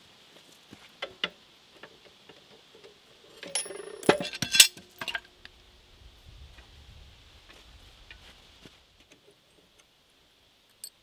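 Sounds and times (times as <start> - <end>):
metal clamps clanking: 3.4 - 5.3.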